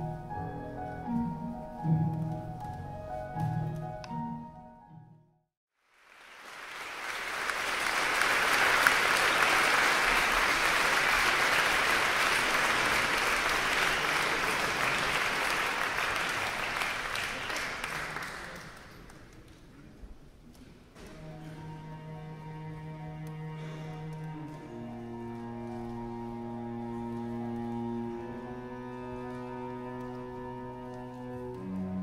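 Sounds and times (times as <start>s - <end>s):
audience applauding: 5.8s - 19.6s.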